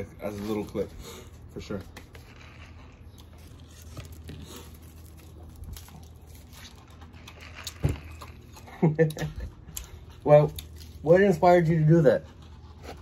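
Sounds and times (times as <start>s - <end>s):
paper wrapper crinkling and tearing: 1.6s - 8.6s.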